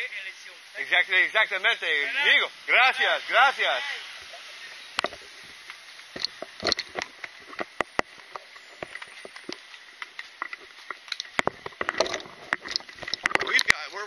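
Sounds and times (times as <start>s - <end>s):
gear rattling against camera: 5.0s - 13.8s.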